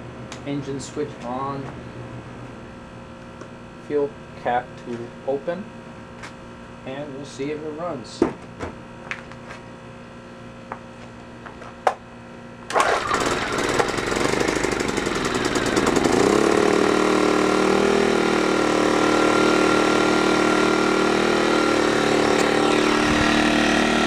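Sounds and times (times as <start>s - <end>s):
pull-starter clicks: 12.7s - 14.0s, 22.2s - 23.3s
generator engine running: 12.7s - 24.0s.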